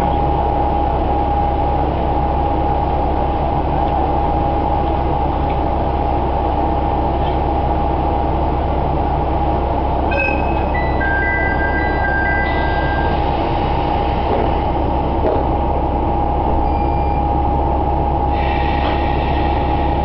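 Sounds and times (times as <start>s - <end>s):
diesel engine idling: 0.0s - 20.0s
electronic chime: 10.1s - 13.2s.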